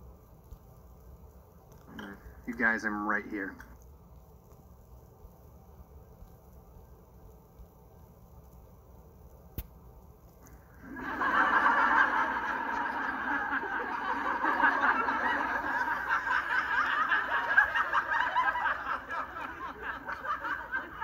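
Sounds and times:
crowd laughing: 10.8 - 21.0.

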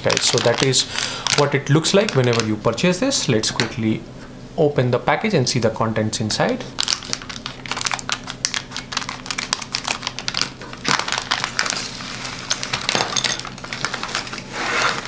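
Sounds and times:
scissors cutting plastic: 0.0 - 2.5
plastic bag crinkling: 0.0 - 3.5, 6.8 - 15.0.

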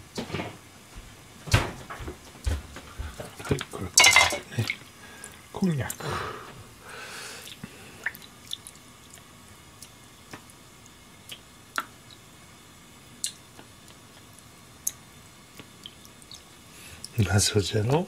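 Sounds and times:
water dripping: 4.0 - 6.0, 7.4 - 12.3, 13.2 - 17.2.

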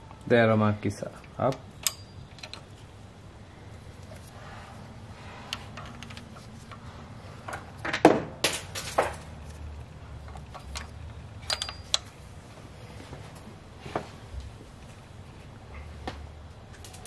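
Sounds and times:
metallic clinks of tools: 1.8 - 2.6, 11.4 - 12.0.

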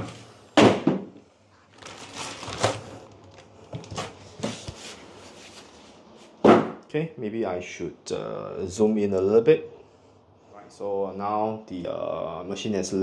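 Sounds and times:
cardboard and plastic rustling: 1.5 - 6.4.

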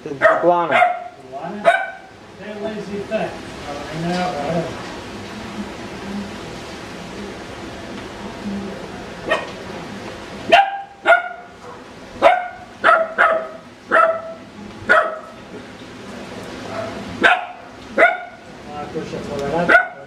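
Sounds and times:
small dog barking: 0.2 - 2.1, 9.3 - 9.6, 10.5 - 15.4, 16.7 - 18.4, 19.7 - 20.0.

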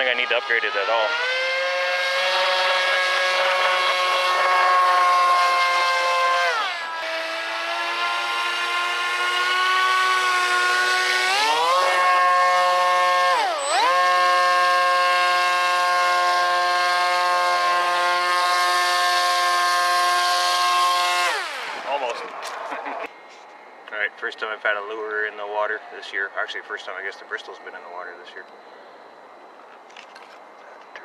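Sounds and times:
model airboat motor whining: 0.0 - 22.2.

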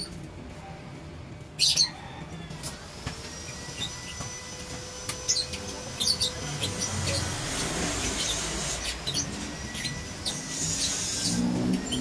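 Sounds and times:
birds chirping: 1.6 - 2.1, 3.4 - 12.0.

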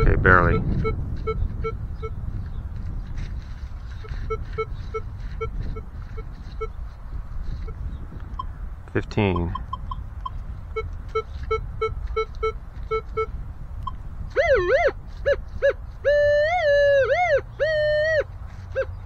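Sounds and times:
metal detector short beeps: 0.0 - 2.2, 4.0 - 6.8, 9.3 - 14.8.

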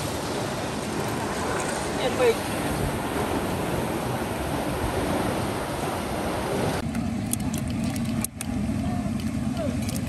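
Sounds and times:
loud steady rushing noise: 0.0 - 6.8.

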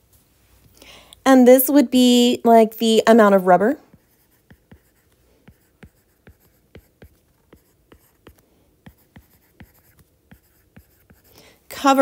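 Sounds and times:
stylus tapping on tablet screen: 3.9 - 11.4.

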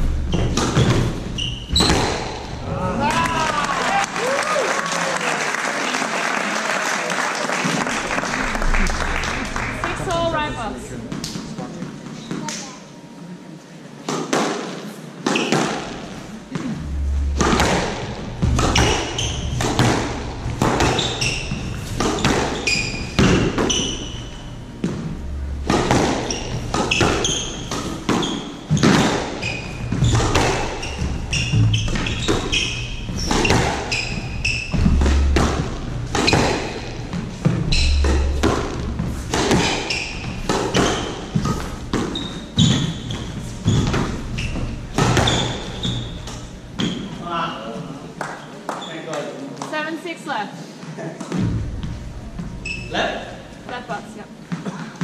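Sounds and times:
squash ball hitting rackets and walls: 0.0 - 2.7, 14.0 - 47.2
shoes squeaking on wooden floor: 0.2 - 2.6, 15.3 - 47.2, 51.3 - 53.0.

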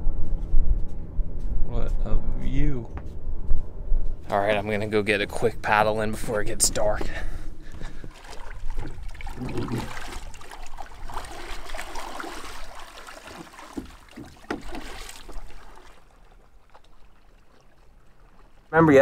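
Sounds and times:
paddle splashing in water: 7.6 - 18.8.

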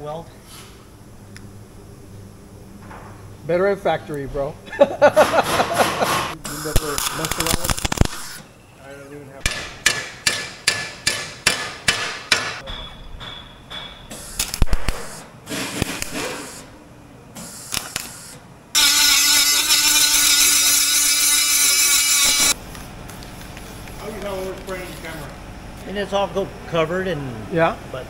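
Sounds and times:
hammer strikes on steel: 9.4 - 14.2
angle grinder grinding steel: 18.8 - 22.6.

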